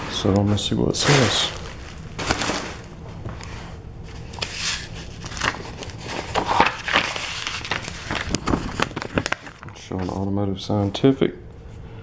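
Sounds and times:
paper rustling: 0:00.0 - 0:10.2.

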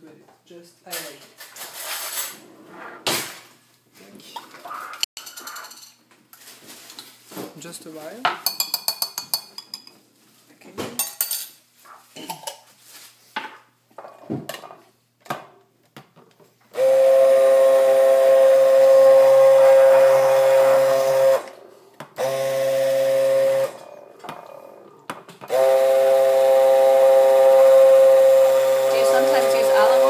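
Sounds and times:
immersion blender motor whine: 0:16.8 - 0:21.6, 0:22.2 - 0:23.8, 0:25.5 - 0:30.0.

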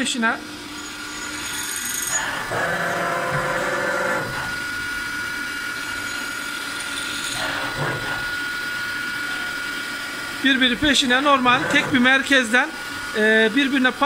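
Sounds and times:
high spindle whine: 0:00.0 - 0:14.0
machining noise: 0:00.7 - 0:05.0.

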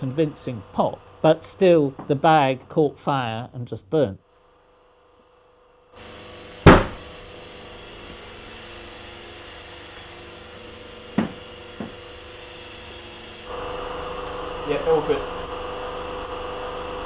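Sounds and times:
loud sharp pop: 0:06.6 - 0:07.0.

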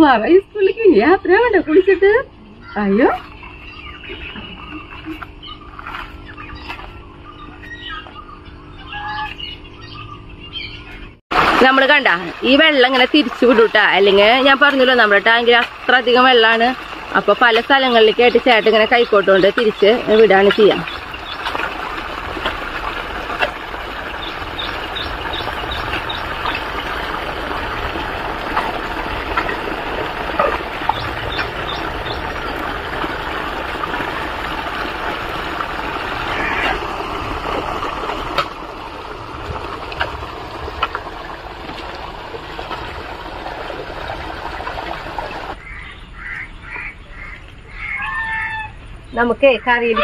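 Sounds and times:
water rushing out of a pond: 0:11.3 - 0:45.7.

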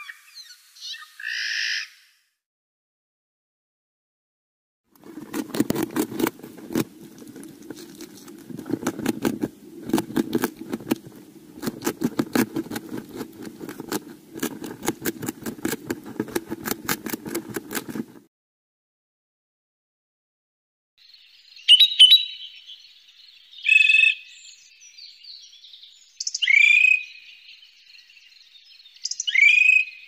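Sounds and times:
low rasping scratchiness: 0:04.9 - 0:18.3
mole-rat clicking: 0:05.0 - 0:18.2.

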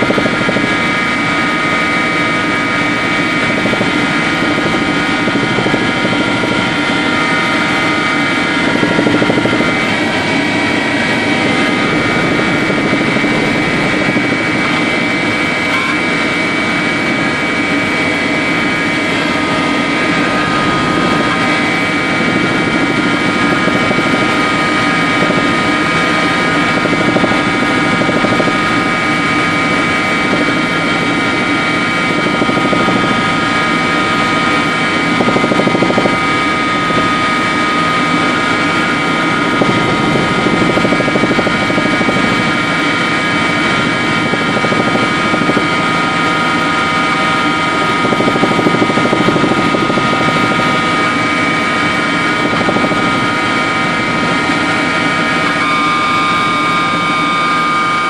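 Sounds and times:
helicopter engine and rotor noise: 0:00.0 - 0:58.0
high whining tones: 0:00.0 - 0:58.0.

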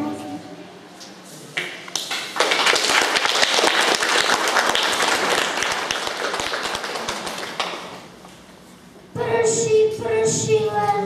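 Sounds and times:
audience applauding: 0:01.9 - 0:08.1.

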